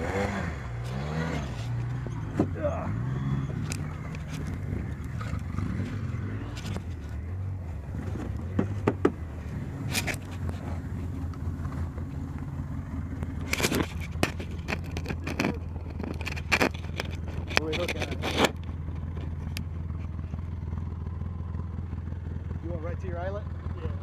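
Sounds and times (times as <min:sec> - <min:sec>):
utility vehicle engine running: 0:00.0 - 0:24.0
knocks and scrapes: 0:00.8 - 0:02.6, 0:03.4 - 0:20.4.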